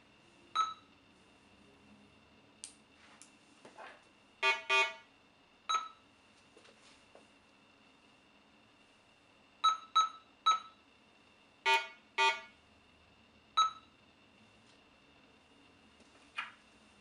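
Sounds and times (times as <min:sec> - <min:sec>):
metal detector beeps: 0:00.6 - 0:00.8, 0:09.6 - 0:10.7, 0:13.6 - 0:13.8
low buzzy detector tones: 0:04.4 - 0:06.1.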